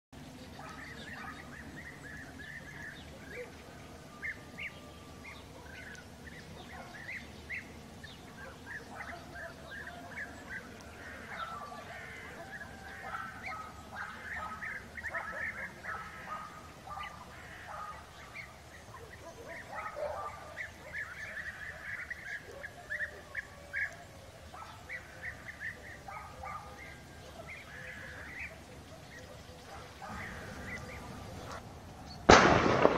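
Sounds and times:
flock of birds calling: 0:00.2 - 0:32.9.

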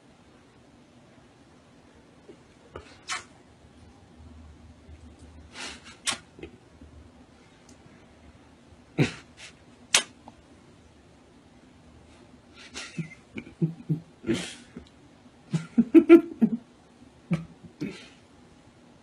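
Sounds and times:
man kissing: 0:02.8 - 0:03.3, 0:05.8 - 0:06.4, 0:09.9 - 0:10.2.

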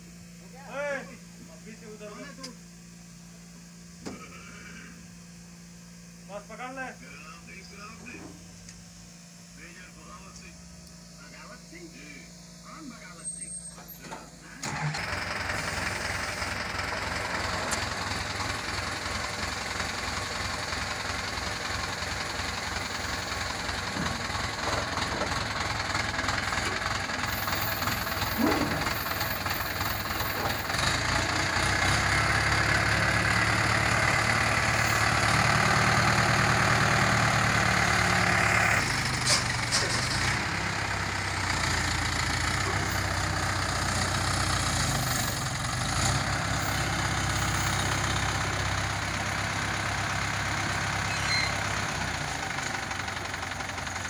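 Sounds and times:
diesel tractor engine revving: 0:13.1 - 0:54.0.

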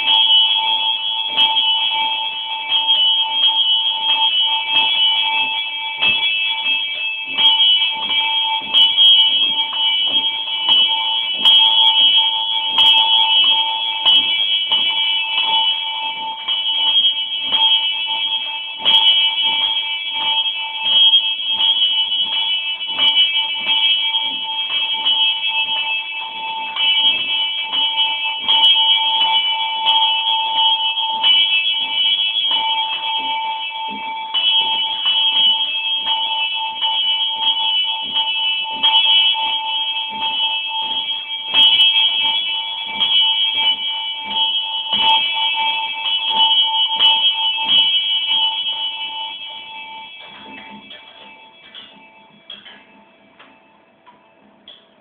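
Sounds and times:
small bell ringing: 0:00.0 - 0:55.0.

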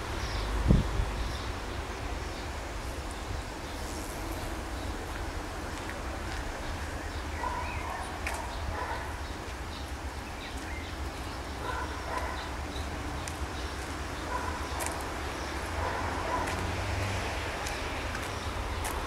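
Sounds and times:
distant calls: 0:06.0 - 0:17.0.

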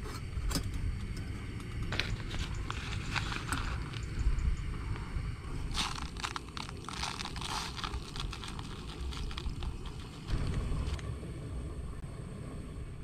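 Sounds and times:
low rumble: 0:00.2 - 0:13.0
ground coffee pouring into filter: 0:01.8 - 0:04.2, 0:05.7 - 0:10.3.

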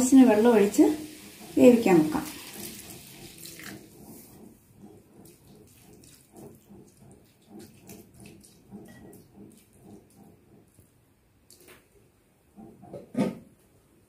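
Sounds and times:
spatula stirring wet mixture: 0:00.0 - 0:11.9
water splashing into hot pan: 0:00.2 - 0:04.1.

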